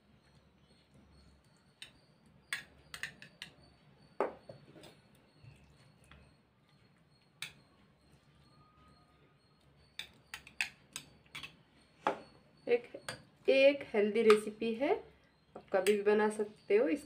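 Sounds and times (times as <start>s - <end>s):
spoon clinking glass bowl: 7.4s - 8.9s, 9.9s - 12.3s, 13.0s - 13.3s.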